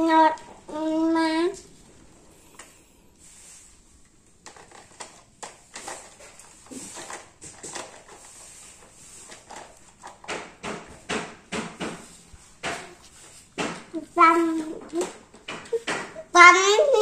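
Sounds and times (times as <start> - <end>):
plastic toys clacking: 4.4 - 11.9, 13.6 - 17.0.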